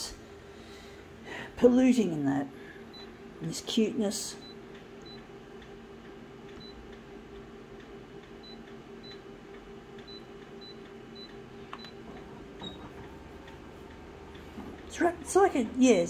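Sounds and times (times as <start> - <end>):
steady low hum: 0.0 - 16.0
photocopier touchscreen beeps: 2.9 - 3.1, 8.4 - 9.2, 10.0 - 12.0.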